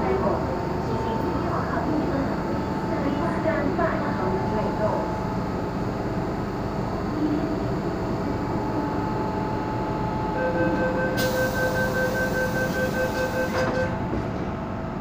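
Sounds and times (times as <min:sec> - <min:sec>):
stopped train humming: 0:00.0 - 0:15.0
two-pitch door warning beeps: 0:10.3 - 0:14.0
train doors sliding shut: 0:11.1 - 0:14.6.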